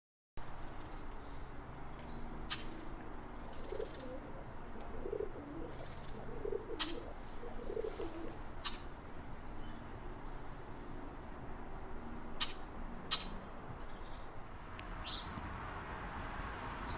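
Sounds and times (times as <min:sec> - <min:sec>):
dove cooing: 0:03.5 - 0:08.4
small bird chirping: 0:12.3 - 0:14.3, 0:15.0 - 0:15.7.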